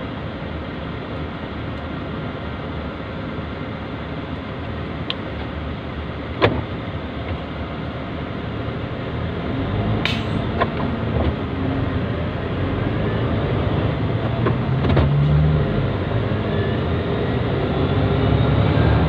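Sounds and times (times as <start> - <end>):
truck engine and road noise: 0.0 - 19.0
sharp click: 10.0 - 10.7.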